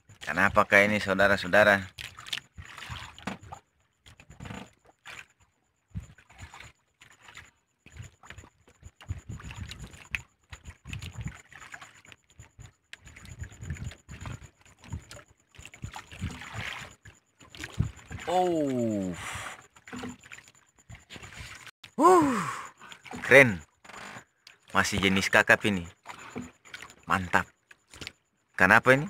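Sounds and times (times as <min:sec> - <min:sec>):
water splashes: 0:00.0 - 0:29.0
fishing line rustling and knocking: 0:19.7 - 0:21.7.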